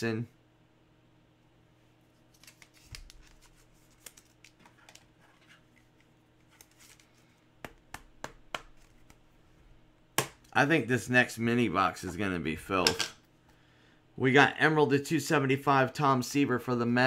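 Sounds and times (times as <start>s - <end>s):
trading cards being handled: 2.2s - 9.4s.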